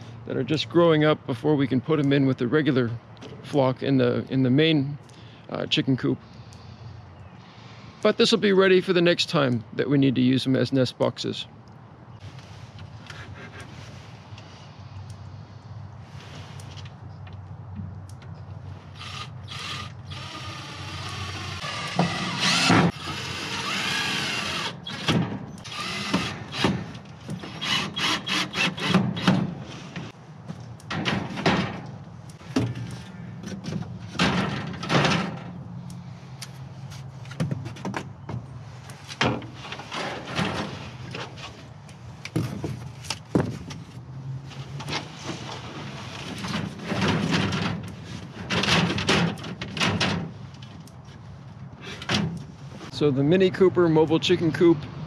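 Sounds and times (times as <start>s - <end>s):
cordless drill whining: 19.0s - 26.6s, 27.5s - 28.9s
plastic crates knocking and scraping: 42.3s - 43.8s.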